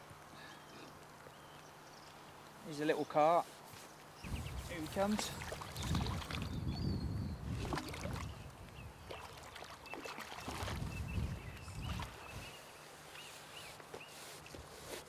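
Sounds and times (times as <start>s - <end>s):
water slapping: 4.9s - 6.6s, 7.5s - 12.4s
fish splashing and thrashing: 5.1s - 6.6s, 7.5s - 8.4s, 9.0s - 11.1s.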